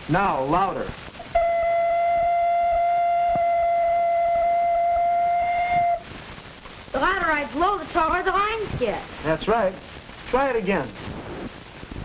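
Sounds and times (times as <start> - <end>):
ocarina high note: 1.3 - 6.1.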